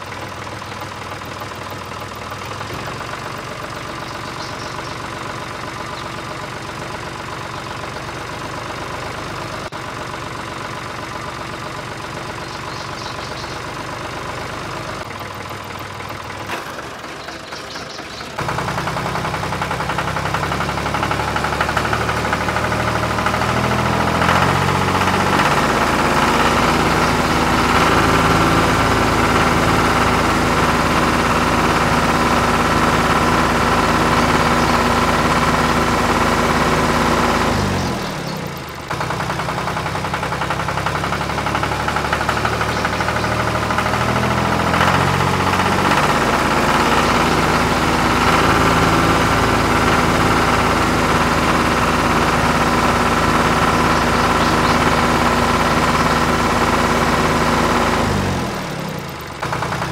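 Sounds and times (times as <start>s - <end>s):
tractor engine knocking: 0.0s - 59.9s.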